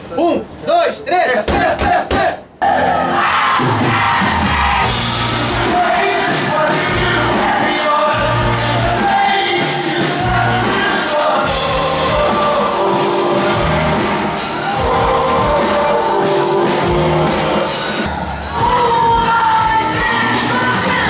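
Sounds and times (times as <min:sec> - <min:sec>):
live pop band with keyboard: 0:03.4 - 0:21.0
man singing: 0:05.4 - 0:18.1.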